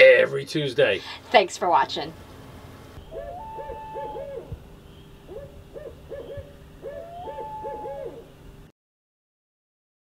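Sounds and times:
owl hooting: 3.0s - 8.4s.

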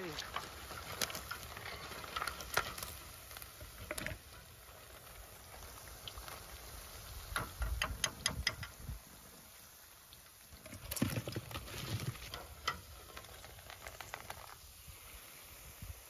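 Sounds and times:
oil sizzling: 0.0s - 10.8s, 11.4s - 16.0s
wire skimmer clicking on pan: 7.3s - 9.0s.

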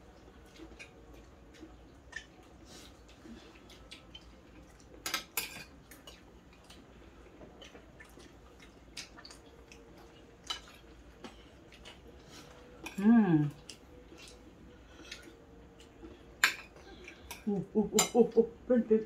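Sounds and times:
cutlery clinking on plates: 5.0s - 5.8s.

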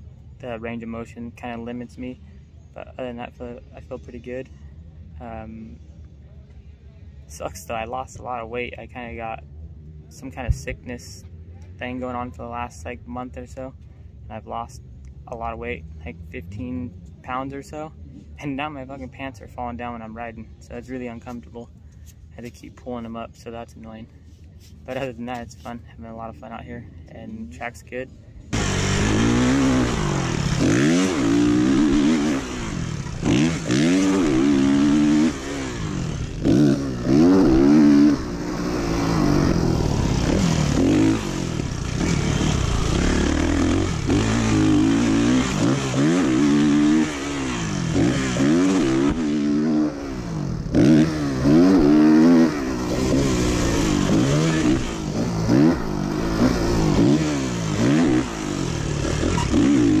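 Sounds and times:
dirt bike engine revving: 28.5s - 60.0s.

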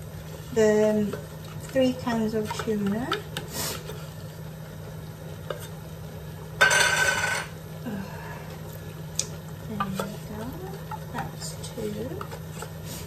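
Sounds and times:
wooden spoon scraping a pan: 0.4s - 4.4s, 9.7s - 13.0s.

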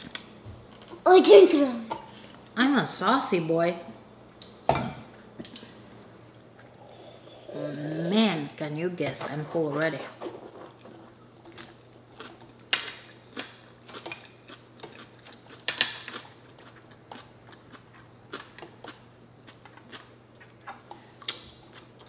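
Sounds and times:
chewing and crunching salad: 10.2s - 22.0s.

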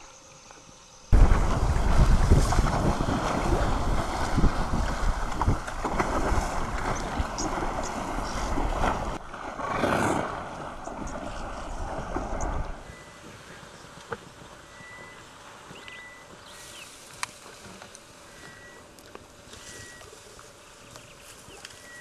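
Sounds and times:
wind buffeting microphone: 1.1s - 15.9s
water washing: 1.2s - 15.5s.

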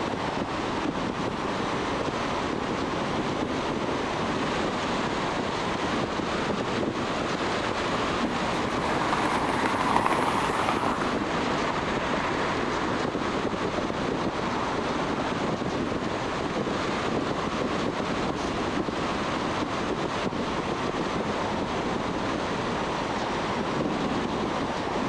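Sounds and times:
tyre and wind noise: 0.0s - 25.0s
car passing close: 4.9s - 16.4s.

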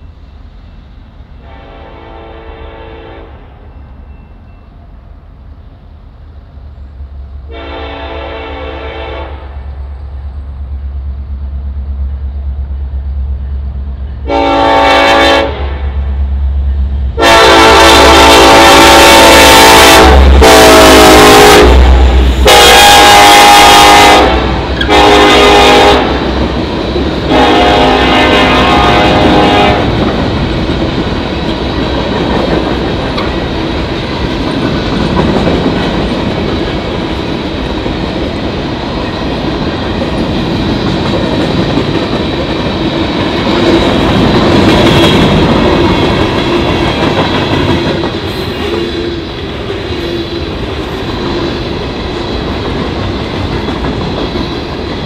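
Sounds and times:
locomotive and wheels rumbling: 0.0s - 55.0s
locomotive air horn blasts: 1.4s - 3.5s, 7.5s - 9.6s, 14.2s - 15.9s, 17.2s - 26.2s, 27.3s - 30.0s.

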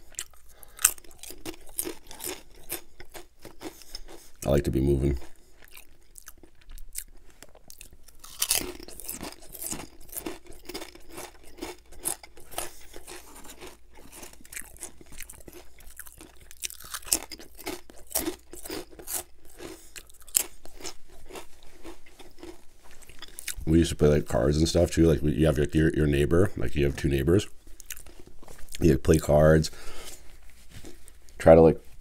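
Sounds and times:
crunching potato chips: 0.0s - 24.0s, 27.8s - 29.2s.

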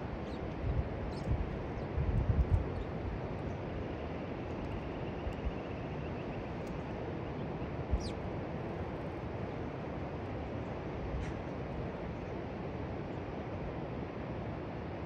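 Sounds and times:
low wind rumble: 0.0s - 15.0s
small bird calling: 7.9s - 8.2s.

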